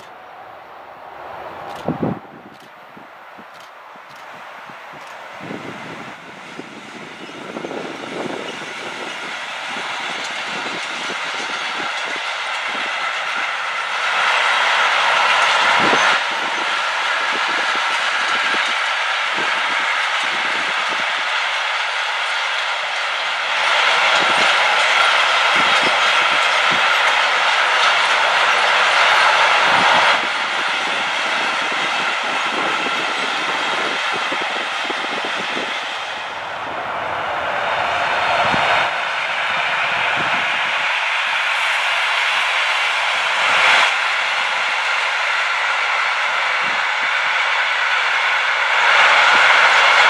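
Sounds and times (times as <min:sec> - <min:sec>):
freight train rolling past: 0:00.0 - 0:50.0
train wheels clicking over rail joints: 0:01.6 - 0:36.4.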